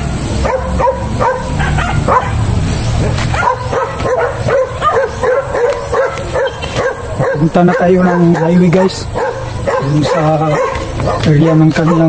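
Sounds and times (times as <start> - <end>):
low rumble: 0.0 - 5.6
dogs yipping and barking: 0.0 - 12.0.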